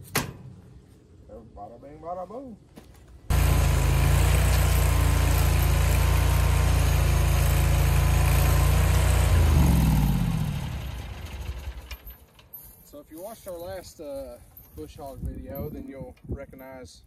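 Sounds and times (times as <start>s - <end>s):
mini skid steer engine running: 3.3s - 12.3s.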